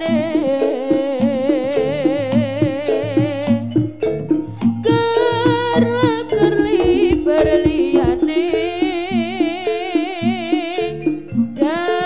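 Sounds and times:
percussion strokes: 0.0s - 12.0s
wavering vibrato melody: 0.0s - 12.0s.

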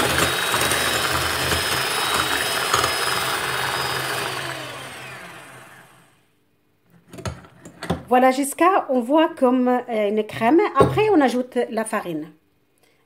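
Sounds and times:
electric hand mixer whirring: 0.0s - 6.2s.

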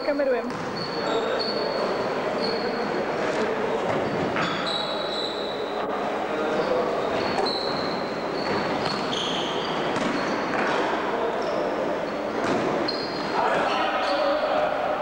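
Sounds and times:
sneakers squeaking on court: 0.4s - 2.8s, 3.9s - 5.6s, 6.6s - 10.8s, 11.4s - 13.4s
basketball bouncing: 9.9s - 10.2s.

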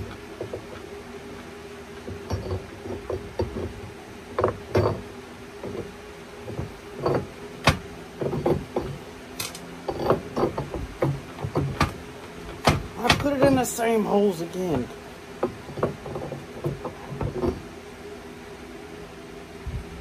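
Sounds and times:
steady low hum: 0.0s - 20.0s
knocks and clicks of metal parts: 2.0s - 5.0s, 5.6s - 13.8s, 14.7s - 17.6s.

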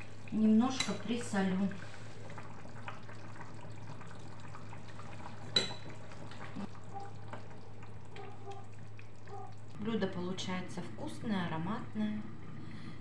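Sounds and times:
low steady hum: 0.0s - 13.0s
spoon clinking against pot: 5.5s - 5.9s.

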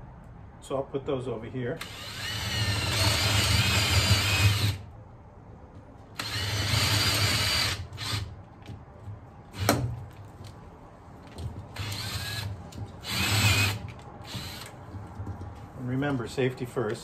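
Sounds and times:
cordless drill whining: 1.8s - 4.8s, 6.2s - 8.3s, 11.8s - 14.8s.

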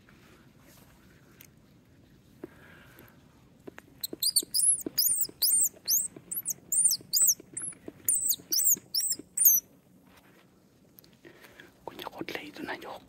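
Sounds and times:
squirrel squeaking: 4.0s - 9.6s.

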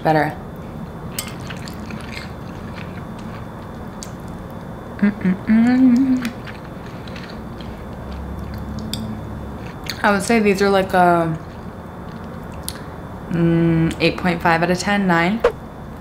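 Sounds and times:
person chewing soft food: 1.2s - 4.7s, 5.7s - 10.0s
person humming mmm: 5.0s - 6.4s.

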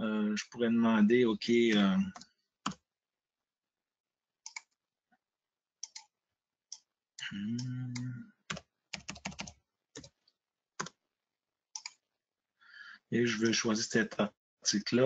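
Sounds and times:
computer keyboard keystrokes: 7.6s - 10.2s, 11.8s - 12.0s.

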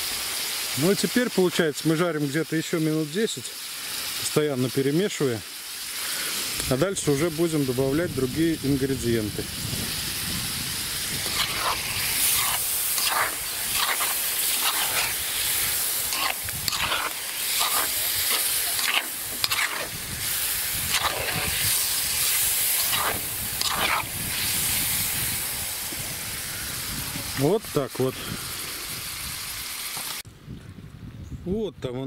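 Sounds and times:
meat sizzling in hot oil: 0.0s - 30.2s
metal spoon scraping pot: 11.2s - 15.2s, 16.0s - 19.9s, 20.9s - 21.6s, 22.8s - 24.1s.

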